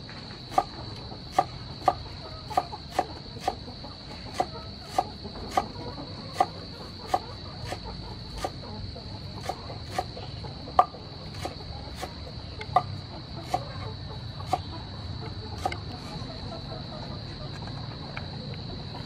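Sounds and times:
knife chopping on wooden board: 0:00.5 - 0:03.6, 0:04.3 - 0:08.6, 0:09.4 - 0:10.1, 0:10.8 - 0:13.7.

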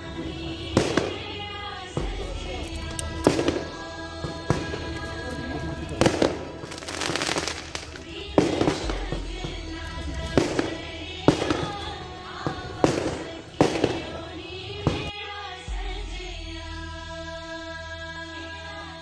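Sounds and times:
firecrackers cracking: 0:00.0 - 0:15.1
background music: 0:00.0 - 0:19.0.

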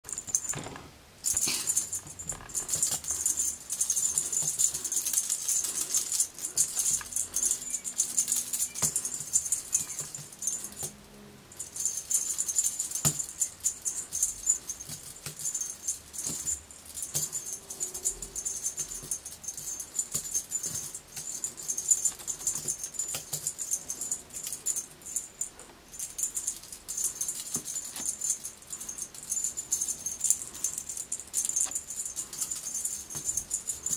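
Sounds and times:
cat toy jingly rattle: 0:00.0 - 0:33.9.

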